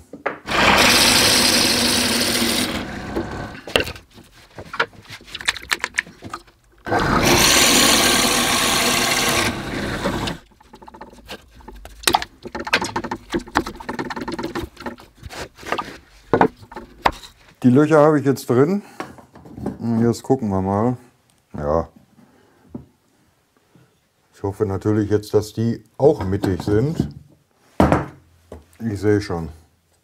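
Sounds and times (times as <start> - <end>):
drill press boring into wood: 0.5 - 3.7, 6.9 - 10.4
scraping of wood block: 0.5 - 17.6.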